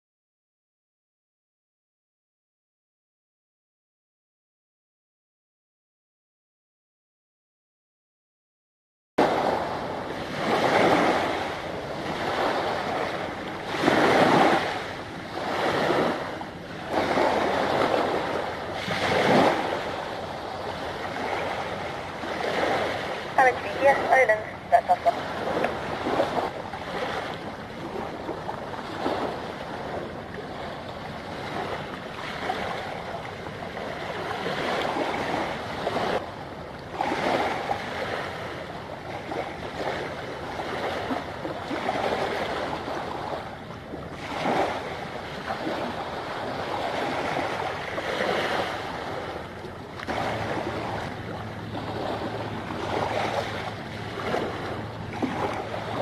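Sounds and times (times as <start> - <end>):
small waves washing on shore: 9.2 - 56.0
low engine hum: 19.6 - 37.8, 48.8 - 56.0.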